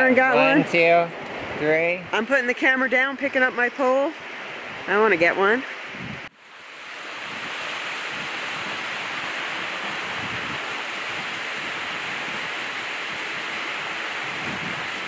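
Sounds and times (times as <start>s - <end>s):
river rushing over rocks: 4.2s - 15.0s.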